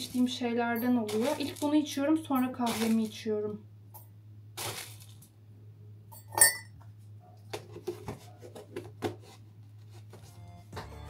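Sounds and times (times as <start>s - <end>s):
metal teaspoon clinking: 6.2s - 6.7s.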